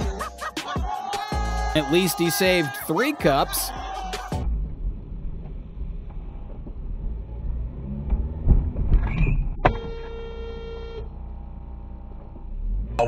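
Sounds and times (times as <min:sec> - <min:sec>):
car horn honking: 0:09.6 - 0:11.2
car idling: 0:10.7 - 0:12.9.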